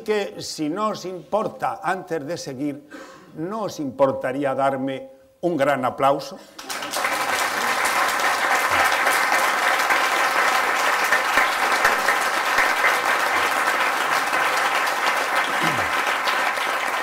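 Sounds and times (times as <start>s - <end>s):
audience applauding: 6.6s - 17.0s.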